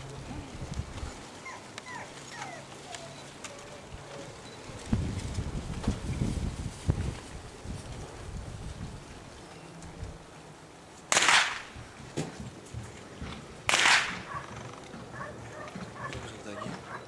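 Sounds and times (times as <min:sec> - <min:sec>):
starter pistol cracks: 0:11.1 - 0:11.7, 0:13.7 - 0:14.3.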